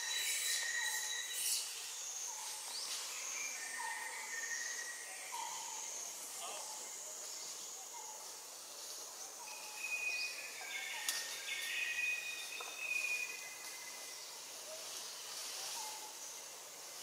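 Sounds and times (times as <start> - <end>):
high whistled calls: 0.0 - 2.4, 9.5 - 14.0
high insect hiss: 0.0 - 17.0.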